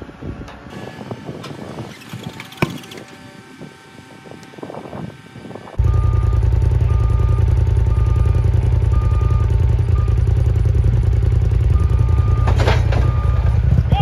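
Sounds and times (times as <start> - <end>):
engine running loudly: 0.0 - 14.0
reversing alarm beeping: 5.8 - 14.0.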